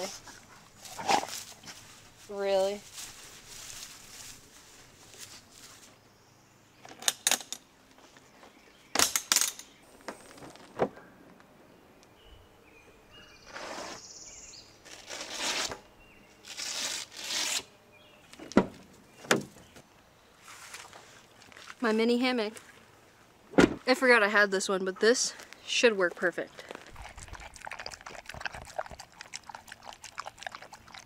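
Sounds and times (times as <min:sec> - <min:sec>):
rustling: 0:00.0 - 0:06.0.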